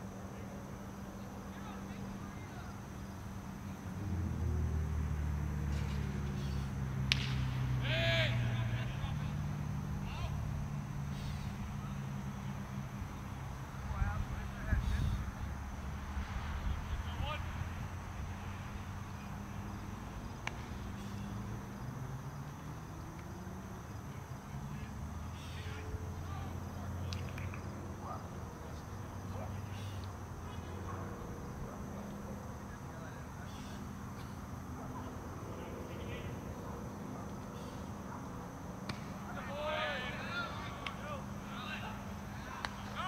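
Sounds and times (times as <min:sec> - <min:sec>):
insects chirping: 0:00.0 - 0:43.0
road traffic hum: 0:00.0 - 0:43.0
baseball hitting glove crack: 0:07.0 - 0:07.7, 0:20.4 - 0:20.9, 0:38.8 - 0:39.3.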